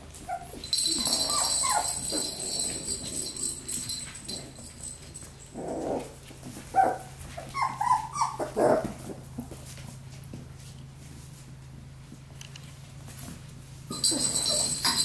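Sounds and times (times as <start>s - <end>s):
puppies yipping and whining: 0.1s - 9.2s, 13.9s - 15.0s.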